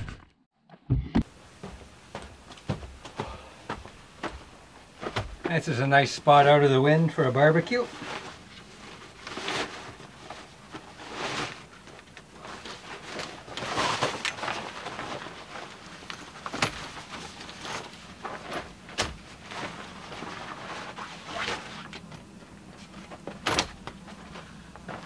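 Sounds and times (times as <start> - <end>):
nylon fabric rustling: 7.5 - 23.4.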